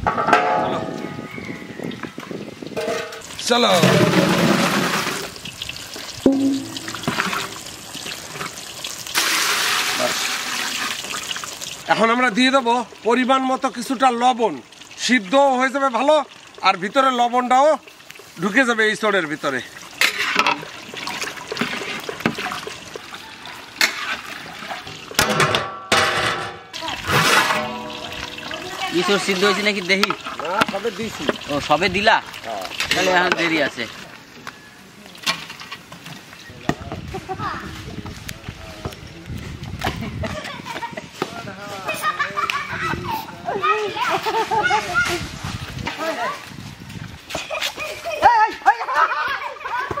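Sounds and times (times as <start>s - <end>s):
sharp knocks on a metal pot: 0.0s - 1.1s, 6.3s - 7.4s, 25.2s - 26.6s
metal spatula knocking pot: 0.0s - 1.2s, 6.3s - 7.5s, 27.5s - 29.3s
water sloshing: 6.2s - 8.6s, 26.8s - 34.2s
metal spatula stirring in a pot: 20.0s - 22.9s, 23.8s - 25.2s, 27.1s - 31.5s.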